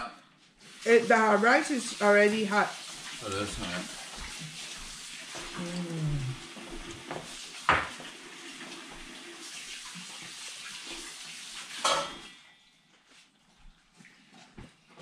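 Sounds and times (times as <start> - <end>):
dishes and cutlery clinking: 11.8 - 12.4.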